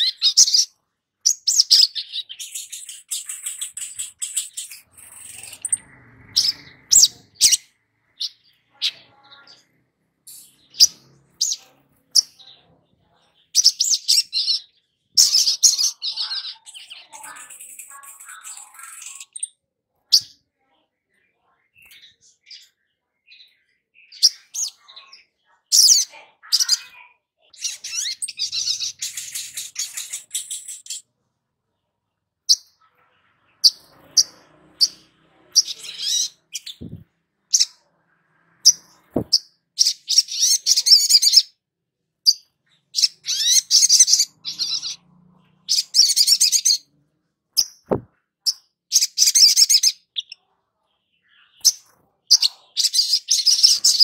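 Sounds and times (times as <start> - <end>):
bird high-pitched chips: 0.0 - 0.7, 1.3 - 9.7, 13.6 - 20.3, 25.7 - 31.0, 33.6 - 37.8, 42.3 - 45.0
sunbird chattering trills: 1.3 - 9.7, 15.2 - 19.5.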